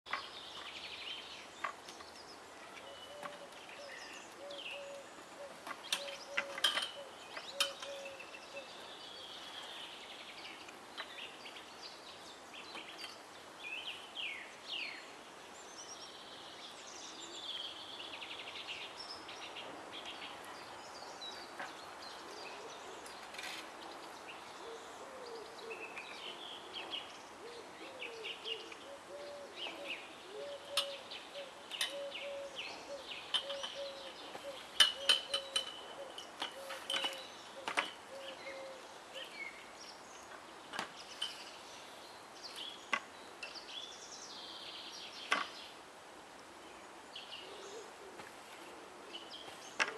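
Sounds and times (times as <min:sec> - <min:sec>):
small birds chirping and singing: 0:00.1 - 0:45.8, 0:46.6 - 0:49.9
bird hooting: 0:02.8 - 0:08.7, 0:27.4 - 0:38.8.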